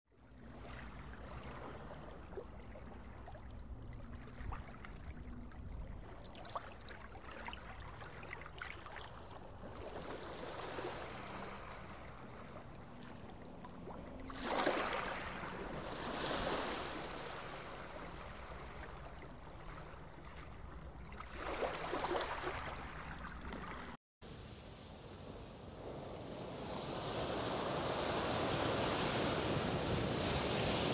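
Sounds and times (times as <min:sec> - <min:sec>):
running water splashing and gurgling: 0:20.2 - 0:24.0.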